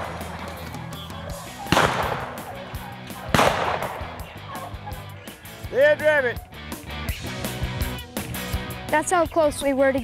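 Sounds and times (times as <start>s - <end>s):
shotgun blasts with echo: 1.6s - 2.6s, 3.2s - 4.4s.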